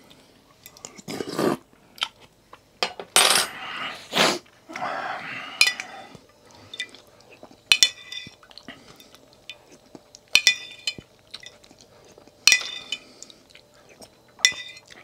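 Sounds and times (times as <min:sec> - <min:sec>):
person slurping noodle soup: 0:01.0 - 0:01.6, 0:03.8 - 0:04.5
spoon clinking against bowl: 0:10.3 - 0:11.6, 0:12.5 - 0:13.0, 0:14.4 - 0:15.0.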